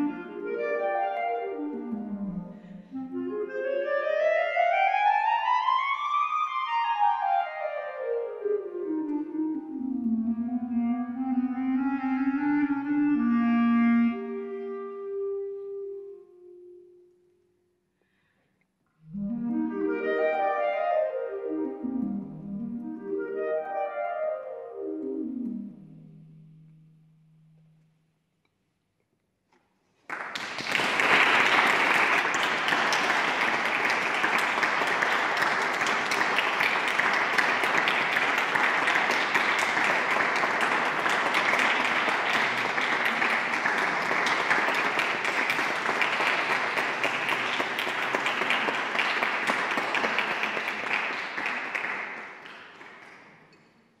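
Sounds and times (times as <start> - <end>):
audience applauding: 30.0 - 53.4.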